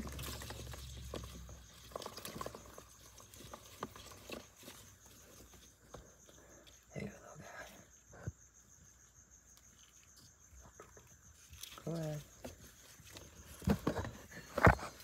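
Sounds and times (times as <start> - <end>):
clicks and rustling in plastic tub: 0.0 - 6.1, 10.6 - 15.0.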